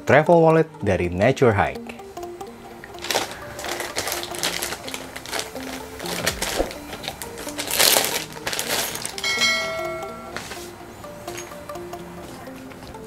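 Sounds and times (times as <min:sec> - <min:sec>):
background music: 0:00.0 - 0:13.0
plastic bag crinkling: 0:03.0 - 0:10.4.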